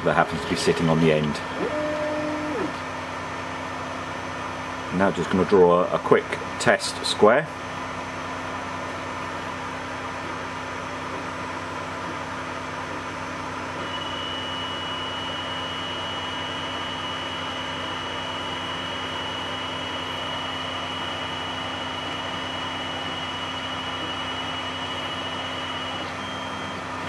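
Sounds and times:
thin high whine: 0:00.0 - 0:02.8, 0:13.8 - 0:27.0
cooling fans humming: 0:00.0 - 0:27.0.

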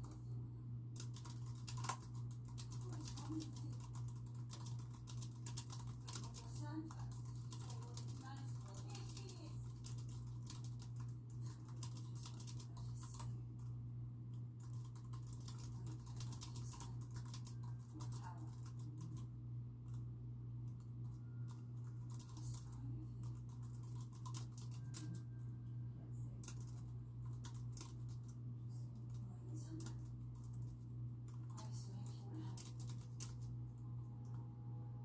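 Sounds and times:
keyboard typing: 0:00.0 - 0:00.3, 0:01.0 - 0:20.1, 0:20.7 - 0:25.6, 0:26.4 - 0:34.5
low hum: 0:09.6 - 0:35.0.

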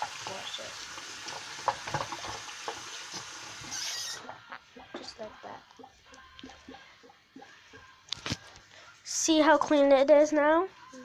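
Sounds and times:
tap water running into sink: 0:00.0 - 0:04.2.

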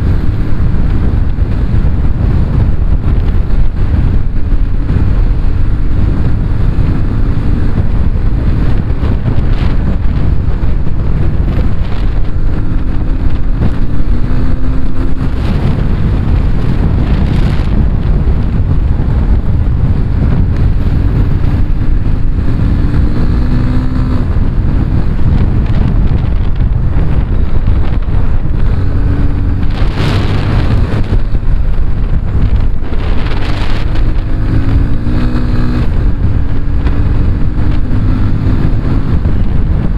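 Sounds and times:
motorcycle engine revving: 0:00.0 - 0:39.9
wind buffeting microphone: 0:00.0 - 0:39.9.

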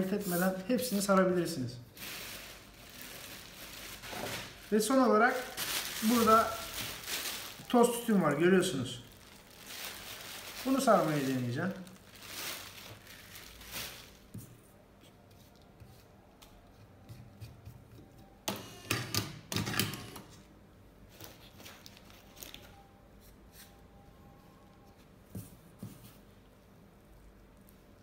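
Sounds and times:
tobacco rustling: 0:01.9 - 0:14.4.

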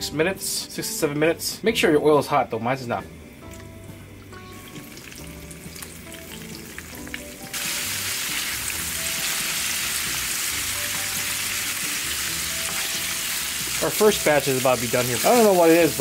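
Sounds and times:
chicken deep-frying in oil: 0:04.6 - 0:16.0.

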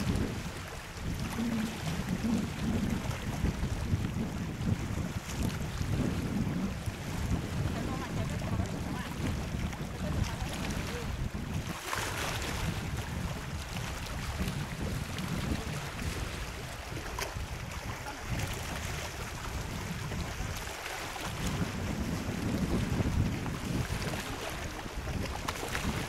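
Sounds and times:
hissing washes of water: 0:00.0 - 0:03.0
water lapping against boat: 0:00.0 - 0:26.0
wind buffeting microphone: 0:00.0 - 0:26.0.

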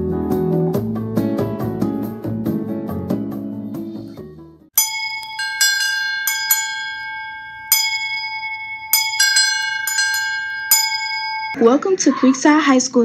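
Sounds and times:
bell ringing high tone: 0:04.8 - 0:11.7.

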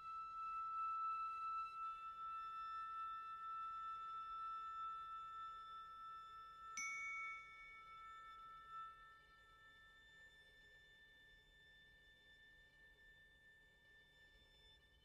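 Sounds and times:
glockenspiel notes ringing: 0:06.8 - 0:09.1.

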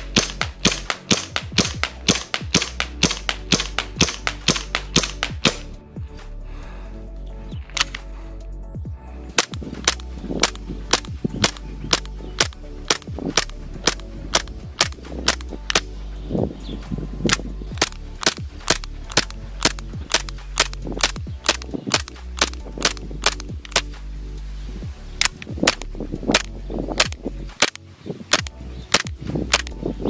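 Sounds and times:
airsoft pistol shots: 0:00.1 - 0:05.7, 0:09.4 - 0:15.9, 0:17.3 - 0:23.9.

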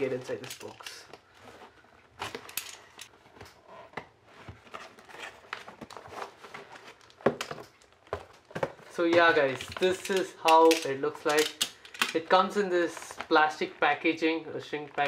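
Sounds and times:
cardboard box being opened: 0:03.2 - 0:07.4.

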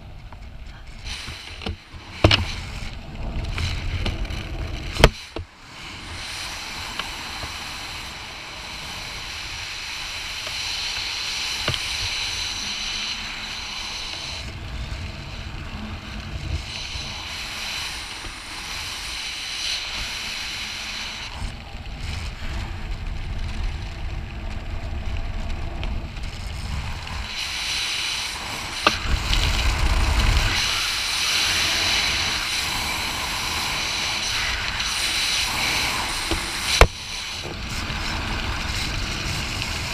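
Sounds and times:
wind buffeting microphone: 0:21.2 - 0:39.9.

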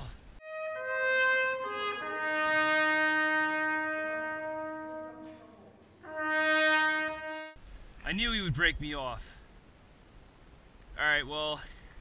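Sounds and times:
solo trumpet: 0:00.4 - 0:07.7.

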